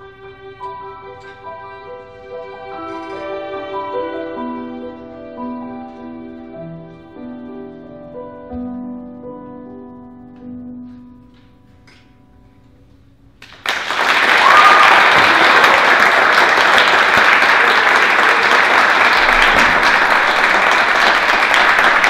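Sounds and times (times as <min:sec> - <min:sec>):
piano and cello: 0:00.0 - 0:13.0, 0:15.2 - 0:22.0
audience applause: 0:13.4 - 0:22.0.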